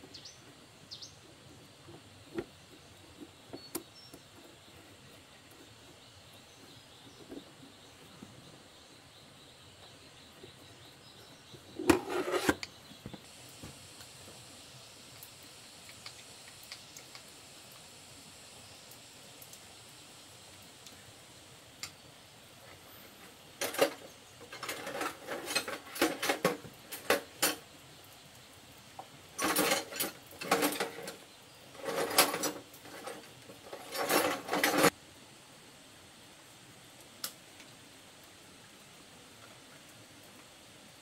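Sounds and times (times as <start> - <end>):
metal tools clinking in toolbox: 23.6 - 27.6, 29.4 - 31.2, 31.8 - 34.9.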